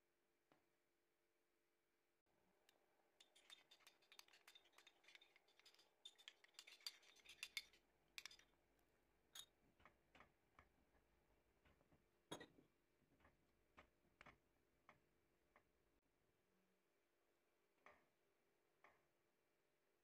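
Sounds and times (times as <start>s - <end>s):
wooden spatula scraping pot: 3.2s - 8.4s.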